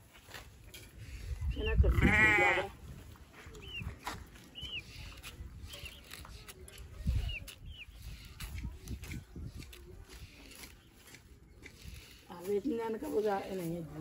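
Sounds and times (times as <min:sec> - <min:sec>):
dry straw rustling and clicking: 0:03.2 - 0:14.0
bird chirping: 0:03.5 - 0:08.6.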